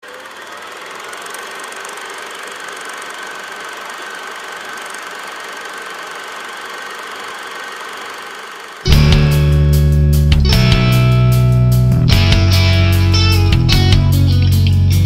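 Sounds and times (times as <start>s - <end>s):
machine running with high whine: 0.0s - 10.0s.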